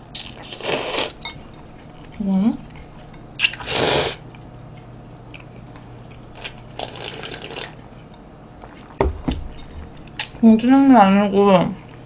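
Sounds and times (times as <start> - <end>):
slurping noodles and broth: 3.4 - 4.2, 6.4 - 7.8
bowl knocking on table: 9.0 - 10.1.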